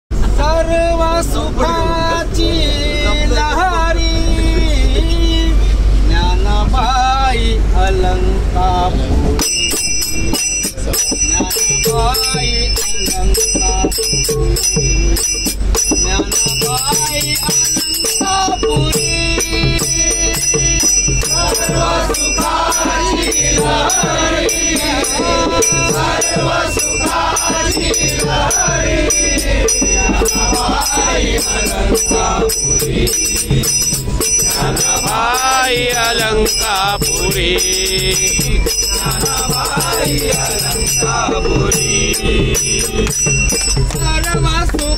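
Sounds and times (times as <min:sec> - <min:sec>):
low train rumble: 0:00.1 - 0:44.9
men singing devotional song: 0:00.2 - 0:44.9
small hand cymbals clashing: 0:41.8 - 0:44.9.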